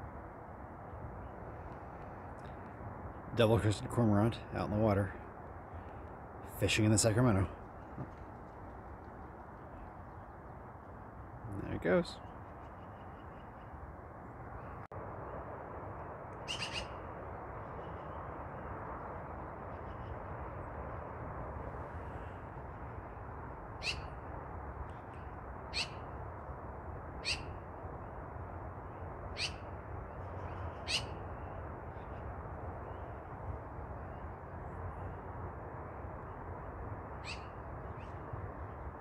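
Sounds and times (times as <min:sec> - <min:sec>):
steady rushing background noise: 0:00.0 - 0:39.0
bird calling: 0:16.4 - 0:17.0, 0:23.8 - 0:24.2, 0:25.7 - 0:26.1, 0:27.2 - 0:27.6, 0:29.3 - 0:33.3, 0:37.2 - 0:38.2.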